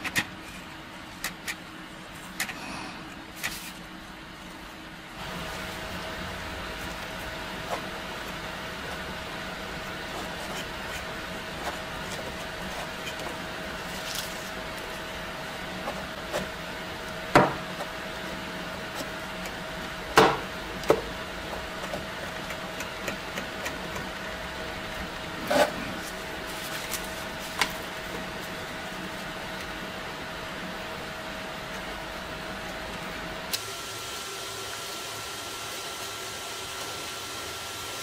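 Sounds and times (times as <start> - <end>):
low steady hum: 0.0 - 34.4
brush spreading paste on metal: 6.7 - 15.2.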